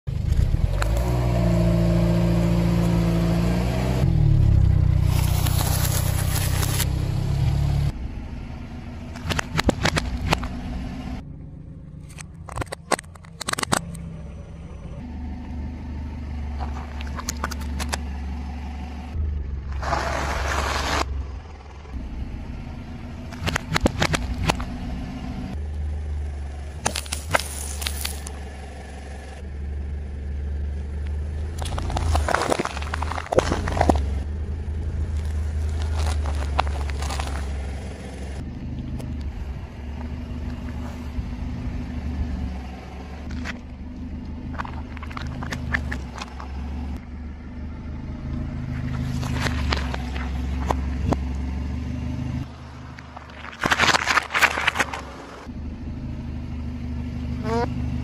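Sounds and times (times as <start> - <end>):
car engine running: 0.0 - 58.0
plastic cracking and crunching: 31.6 - 34.1, 35.2 - 37.6, 53.0 - 55.1.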